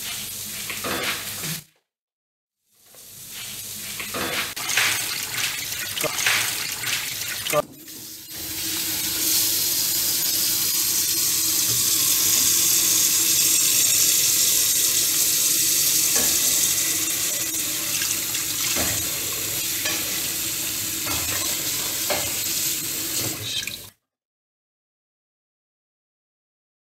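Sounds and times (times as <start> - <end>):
tap water splashing into pot: 4.6 - 8.8, 15.9 - 19.2, 21.0 - 22.5.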